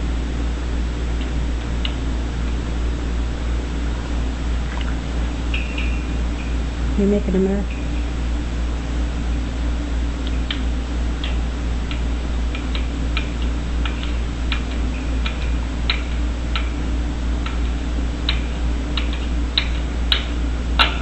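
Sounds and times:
low hum: 0.0 - 18.2
parrot beak clicking: 17.4 - 21.0.

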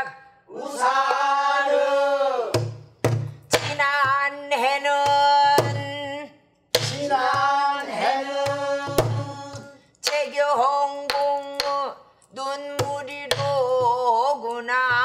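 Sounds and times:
stick beating barrel drum: 2.6 - 10.4, 11.1 - 11.9, 12.7 - 15.0.

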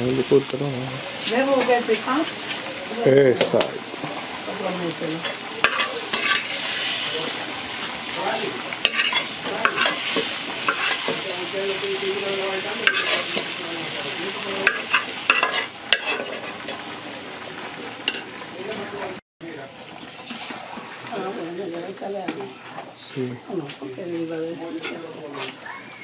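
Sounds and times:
seasoning sizzling in hot oil: 0.0 - 22.1
spoon scraping a pot: 5.2 - 6.9, 8.8 - 11.2, 12.8 - 13.6, 14.6 - 16.8.

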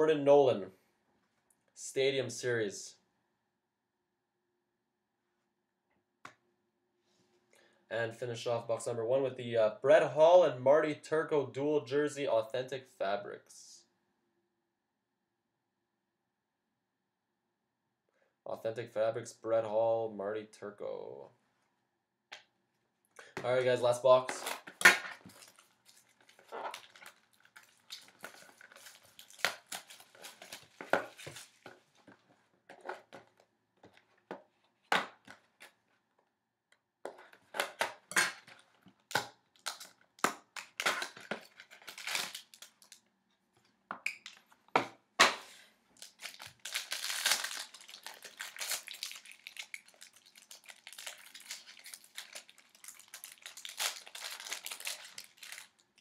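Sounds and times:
packaging being torn open: 24.4 - 31.6, 39.1 - 43.0, 46.0 - 55.8
packaging crinkling and rustling: 24.4 - 33.3, 39.5 - 43.0, 46.0 - 56.0.

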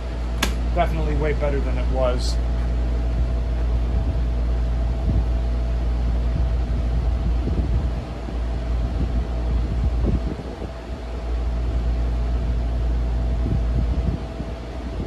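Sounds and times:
desk fan humming: 0.0 - 15.0
rumble of moving air: 0.0 - 15.0.

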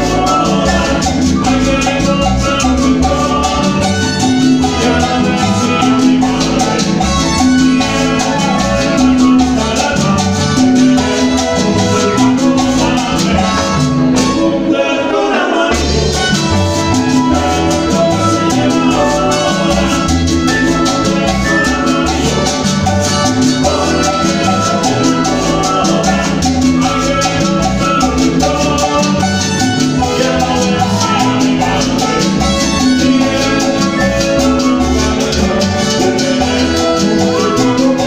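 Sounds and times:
latin dance band playing: 0.0 - 38.0
sung vocals: 0.0 - 38.0.

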